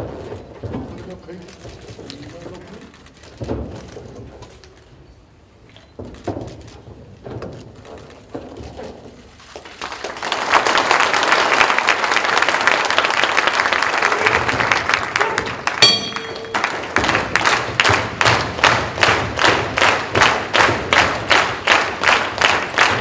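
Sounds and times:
crowd applauding: 0:09.4 - 0:23.0
crowd clapping in rhythm: 0:09.5 - 0:23.0
ring bell: 0:15.8 - 0:16.8.

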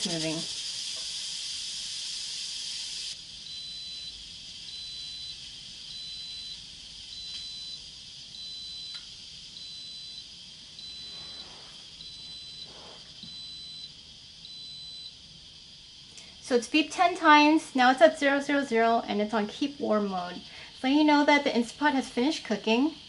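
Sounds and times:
pressure cooker beeping: 0:00.0 - 0:15.2
steady hiss: 0:00.0 - 0:23.0.

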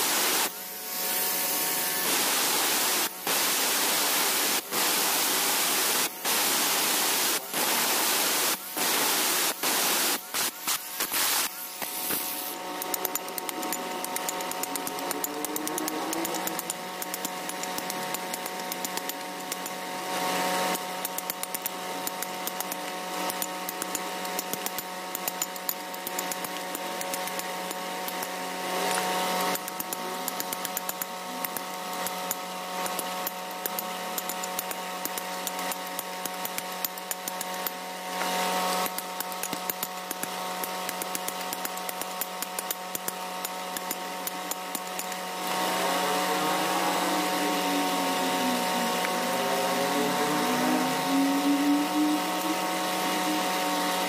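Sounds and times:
steady hum: 0:00.0 - 0:54.0
hammer chipping stone: 0:10.4 - 0:45.6.

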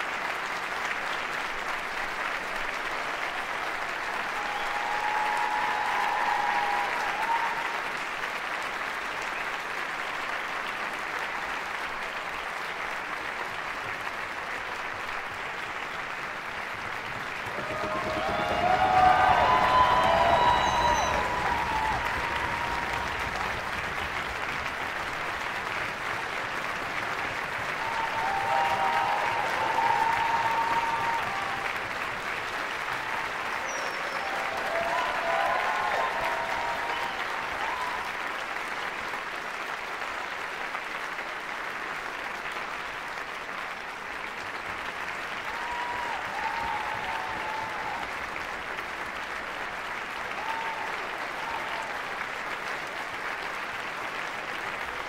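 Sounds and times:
audience applauding: 0:00.0 - 0:55.0
crowd calling out: 0:17.5 - 0:23.2, 0:27.8 - 0:31.7, 0:33.6 - 0:38.0.

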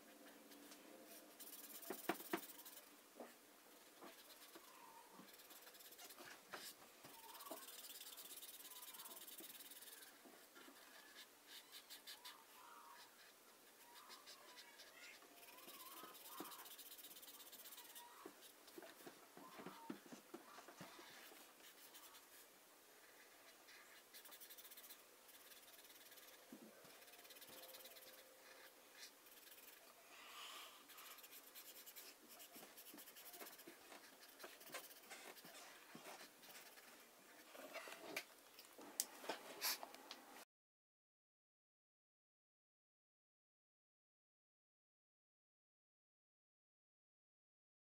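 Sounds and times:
marker nib squeaks: 0:01.3 - 0:02.9, 0:03.9 - 0:22.4, 0:23.1 - 0:30.0, 0:30.8 - 0:38.0
marker rubbing on paper: 0:01.3 - 0:02.9, 0:03.8 - 0:22.5, 0:23.1 - 0:29.9, 0:30.8 - 0:38.1.

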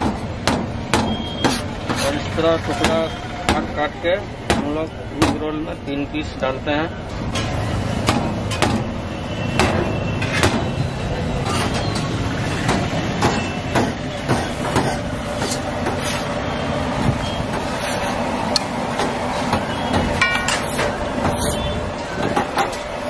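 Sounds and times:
busy street rumble: 0:00.0 - 0:23.0
spatulas scraping on griddle: 0:11.4 - 0:12.6, 0:14.4 - 0:16.3, 0:17.2 - 0:18.3, 0:20.2 - 0:21.8.

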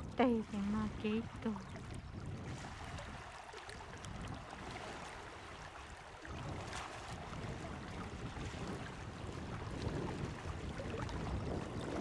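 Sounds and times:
wind rumbling on microphone: 0:00.0 - 0:12.0
river flowing: 0:02.6 - 0:12.0.

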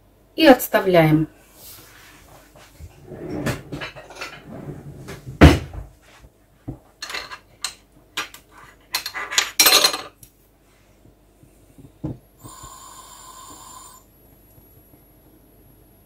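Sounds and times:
saucepan and utensils clattering: 0:07.0 - 0:10.2.

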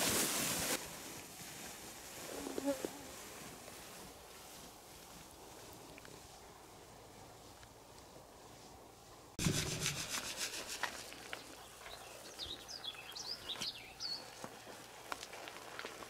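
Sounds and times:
salt grains pouring onto hide: 0:09.4 - 0:11.5
birds chirping: 0:09.6 - 0:14.8.

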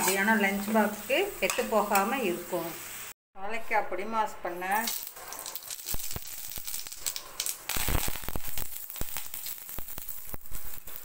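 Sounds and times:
leaves sizzling in hot oil: 0:00.0 - 0:03.2, 0:04.6 - 0:11.0
oil crackling and popping: 0:04.8 - 0:11.0.

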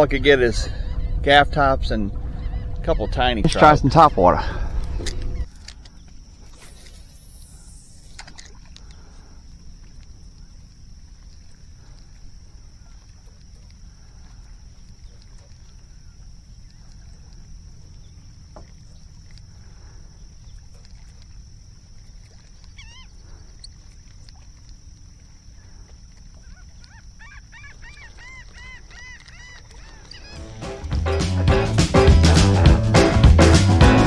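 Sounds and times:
steady low rumble: 0:00.0 - 0:26.6
seabirds calling: 0:00.0 - 0:32.6.

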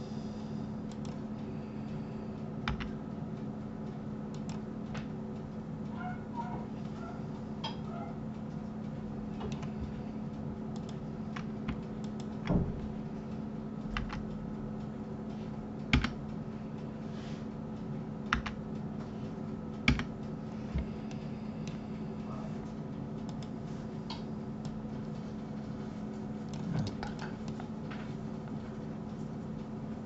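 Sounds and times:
low electrical hum: 0:00.0 - 0:30.0
keyboard and mouse clicks: 0:00.9 - 0:01.2, 0:02.6 - 0:02.9, 0:09.4 - 0:09.7, 0:10.7 - 0:12.6, 0:14.0 - 0:14.3, 0:15.9 - 0:16.2, 0:18.3 - 0:18.6, 0:19.8 - 0:20.1, 0:23.2 - 0:23.5.

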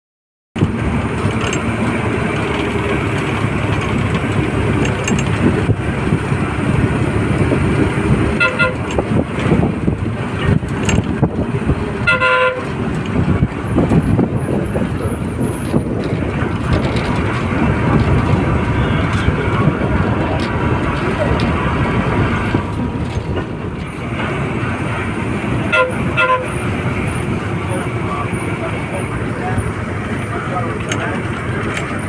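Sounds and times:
vehicle engine and road noise: 0:00.6 - 0:32.0
horn tooting: 0:08.3 - 0:09.0, 0:12.0 - 0:12.8, 0:18.6 - 0:19.9, 0:25.6 - 0:26.8.

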